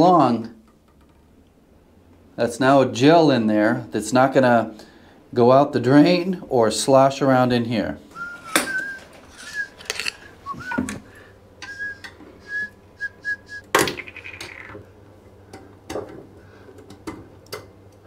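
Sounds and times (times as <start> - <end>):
high whistle-like notes: 8.1 - 11.0, 11.6 - 13.7
metal tools clinking and scraping: 8.5 - 10.3.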